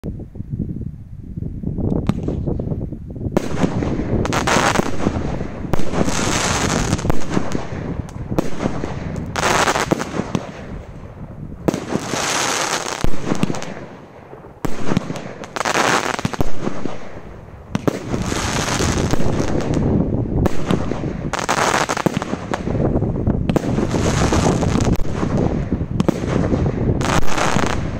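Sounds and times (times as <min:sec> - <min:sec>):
firework crackling: 0:01.9 - 0:27.9
firework shots: 0:02.0 - 0:02.7, 0:03.3 - 0:27.9.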